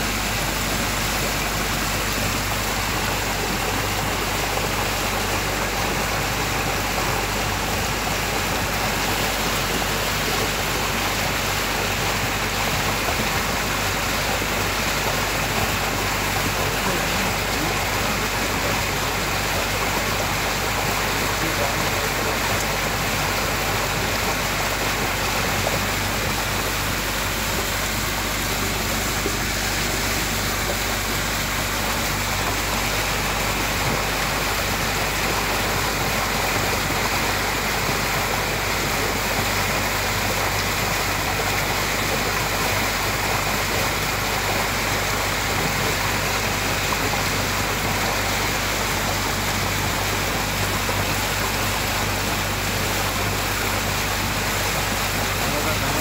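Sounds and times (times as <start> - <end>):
boat engine humming: 0.0 - 56.0
water rushing past boat: 0.0 - 56.0.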